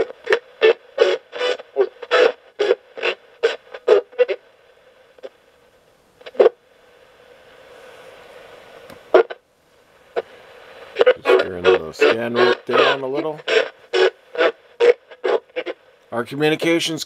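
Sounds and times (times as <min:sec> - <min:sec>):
radio blips: 0:00.0 - 0:05.6, 0:06.2 - 0:09.4, 0:10.0 - 0:17.0
faint static hiss: 0:00.0 - 0:17.0
choppy radio station fragments: 0:10.0 - 0:17.0.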